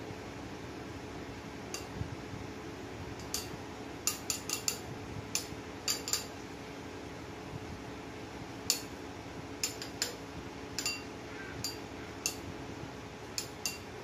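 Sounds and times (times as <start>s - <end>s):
metal grater clinking: 5.4s - 6.3s, 13.4s - 13.9s.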